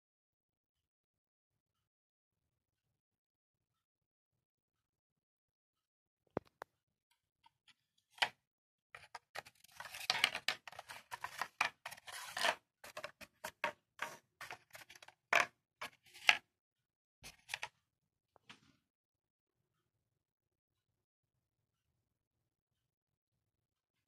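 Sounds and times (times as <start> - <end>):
paper models scraping: 9.0 - 16.4, 17.2 - 17.7.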